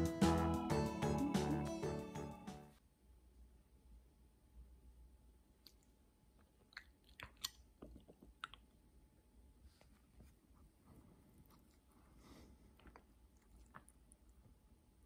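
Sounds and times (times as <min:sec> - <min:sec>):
dog licking its paw: 0:06.7 - 0:08.6.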